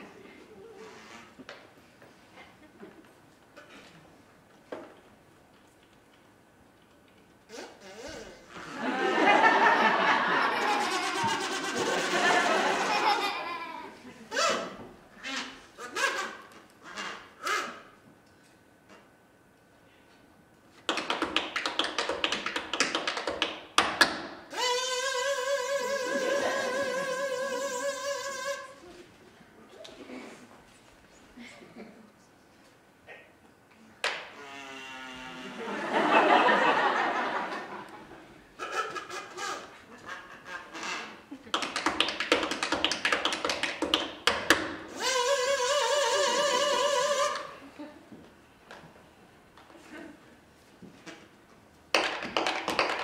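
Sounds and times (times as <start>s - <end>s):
tap shoes tapping: 20.9s - 24.2s, 41.5s - 44.8s.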